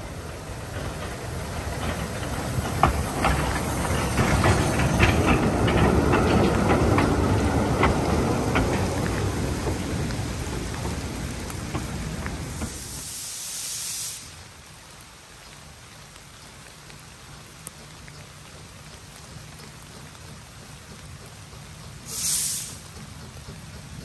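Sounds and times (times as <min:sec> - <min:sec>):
wagon wheels clicking over rail joints: 0:00.0 - 0:12.9, 0:16.0 - 0:24.0
steam locomotive hissing: 0:00.0 - 0:14.5, 0:20.2 - 0:24.0.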